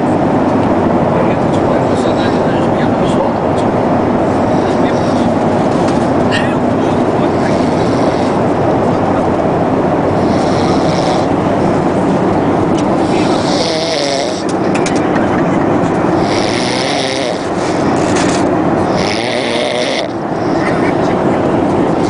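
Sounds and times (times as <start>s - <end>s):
airliner cabin drone: 0.0s - 22.0s
man snoring: 4.3s - 5.4s, 7.3s - 8.6s, 10.1s - 11.4s, 13.0s - 14.5s, 16.2s - 17.9s, 18.8s - 20.8s.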